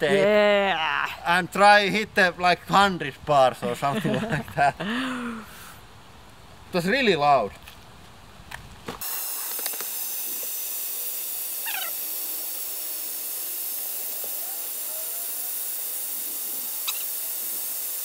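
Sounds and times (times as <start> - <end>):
compressed air hissing through hose: 9.0 - 18.0.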